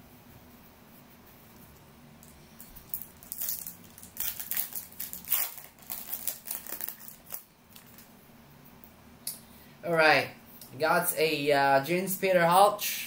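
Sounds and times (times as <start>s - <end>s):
foil wrapper crinkling and tearing: 2.6s - 8.1s.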